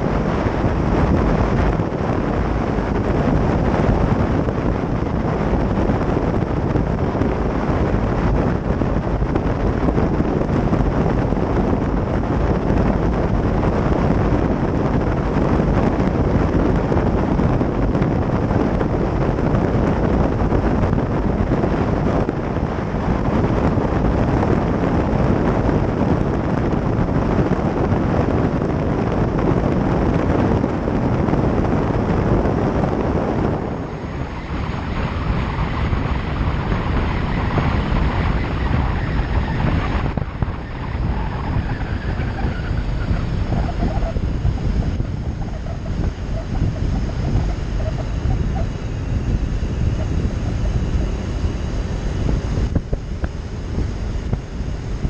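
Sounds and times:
vehicle driving noise: 0.0s - 55.0s
wind buffeting microphone: 0.0s - 55.0s.

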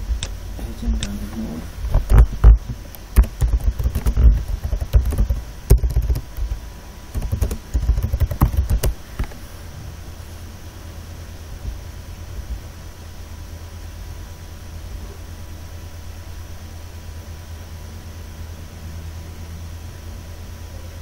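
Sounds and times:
keyboard typing clicks: 3.2s - 9.0s.

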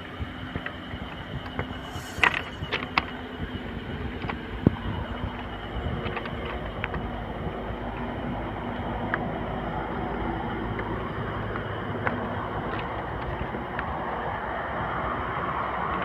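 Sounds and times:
road traffic hum: 0.0s - 15.8s.

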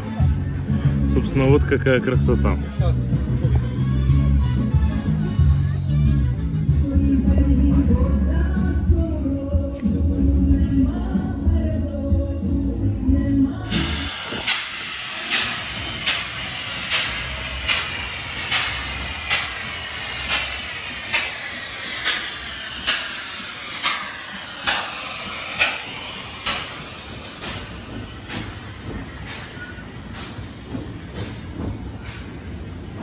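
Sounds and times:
steam hiss: 13.6s - 33.0s
steam locomotive exhaust chuff: 13.6s - 33.0s
train wheels clattering: 13.7s - 33.0s.

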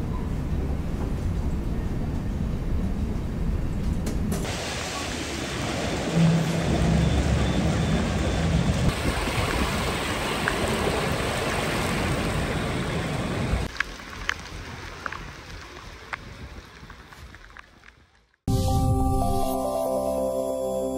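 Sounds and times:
floodwater rushing: 4.4s - 16.2s.

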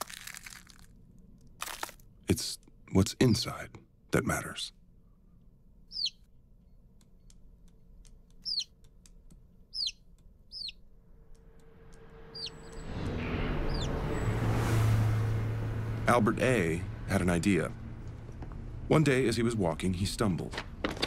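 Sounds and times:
chick peeping: 5.9s - 6.2s, 8.3s - 8.8s, 9.7s - 10.8s
rush of noise: 11.4s - 18.0s.

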